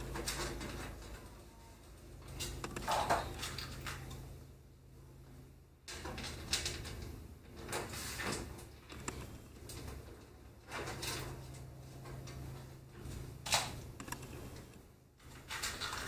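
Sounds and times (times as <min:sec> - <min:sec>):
small metal clicks and scrapes: 0:02.2 - 0:04.2, 0:05.9 - 0:16.0.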